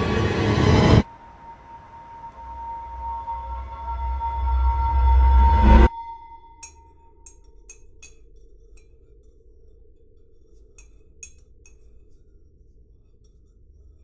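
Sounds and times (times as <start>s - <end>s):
held music tone: 0.0s - 8.1s
light clinks and ticks: 10.7s - 12.0s.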